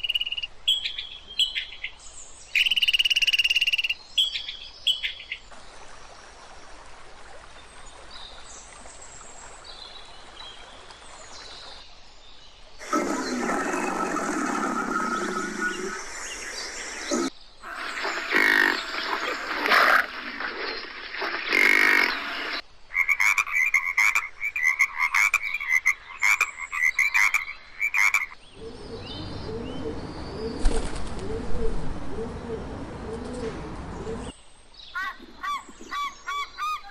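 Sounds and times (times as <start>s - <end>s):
pigeons cooing: 28.6s - 34.3s.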